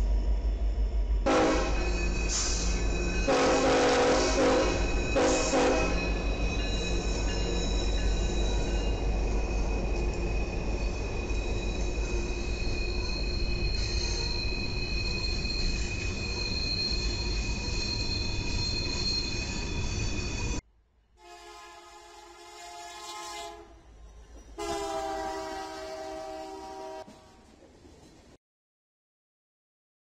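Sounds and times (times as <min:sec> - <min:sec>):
freight train rumbling: 0:00.0 - 0:20.6, 0:21.2 - 0:28.4
locomotive air horn blasts: 0:01.3 - 0:01.8, 0:03.3 - 0:06.1, 0:21.2 - 0:23.8, 0:24.6 - 0:27.4
high wheel squeal: 0:01.4 - 0:20.6.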